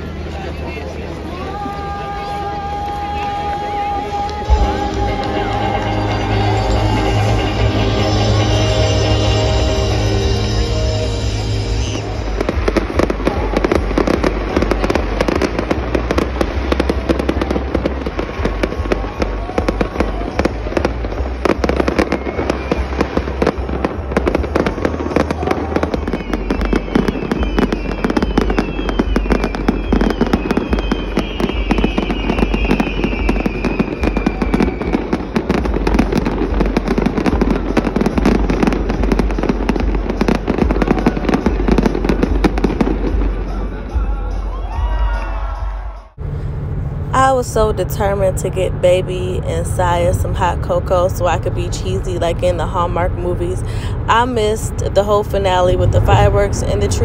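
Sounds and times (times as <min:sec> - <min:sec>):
fireworks crackling and popping: 0:00.0 - 0:45.0
falling firework whistles: 0:21.6 - 0:23.6, 0:25.1 - 0:43.6.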